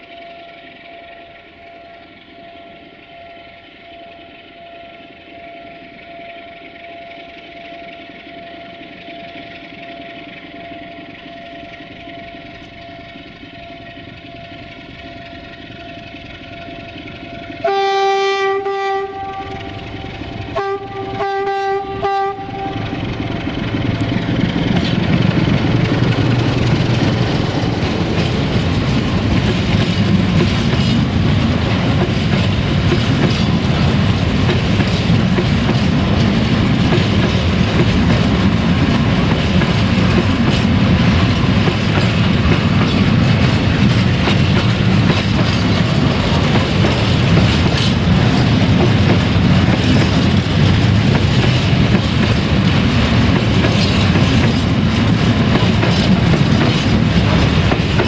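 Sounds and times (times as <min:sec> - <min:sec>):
locomotive engine hum: 0:00.0 - 0:58.0
locomotive horn blasts: 0:17.6 - 0:23.0
freight wagons rumbling: 0:18.6 - 0:58.0.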